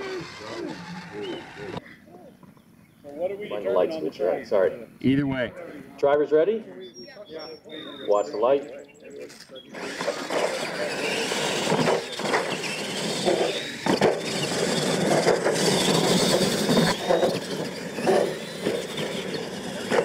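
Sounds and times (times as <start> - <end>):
toy truck motors whining: 0.0 - 1.8, 9.2 - 20.0.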